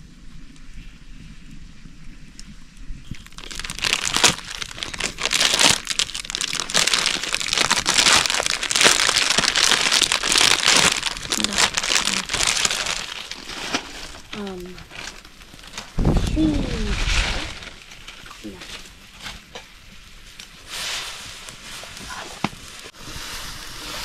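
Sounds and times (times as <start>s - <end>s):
dense crinkling and crunching: 3.1s - 23.0s.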